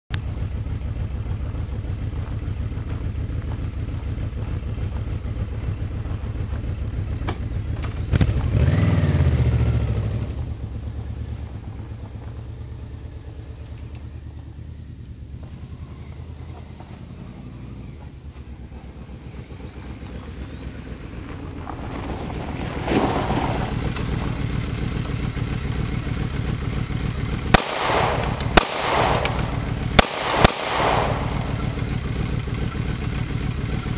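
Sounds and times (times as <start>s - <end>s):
motorcycle engine idling and revving: 0.1s - 33.9s
handgun shots: 27.6s - 31.9s.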